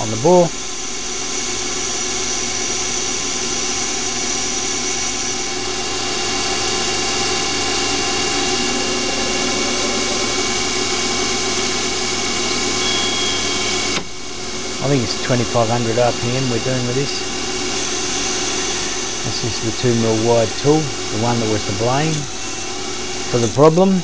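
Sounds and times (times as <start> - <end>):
lathe machine hum: 0.0 - 24.0
spindle whining tones: 6.8 - 22.6.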